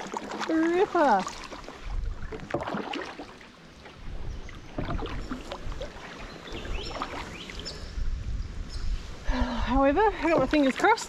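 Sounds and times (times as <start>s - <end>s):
small splashes and drips: 0.0s - 7.8s
paddle strokes in water: 0.0s - 7.9s, 10.2s - 11.0s
wind rumble on microphone: 0.7s - 2.8s, 4.0s - 11.0s.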